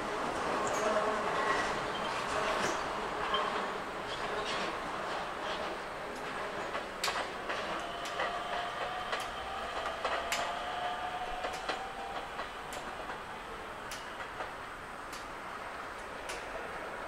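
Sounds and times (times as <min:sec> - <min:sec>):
train rail noise with wheel clatter: 0:00.0 - 0:17.0
sharp clicks: 0:13.8 - 0:14.2.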